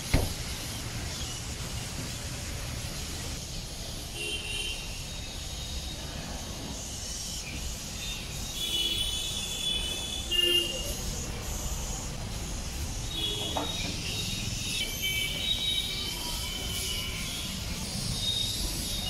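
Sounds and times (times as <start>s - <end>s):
single thump: 0.1s - 0.5s.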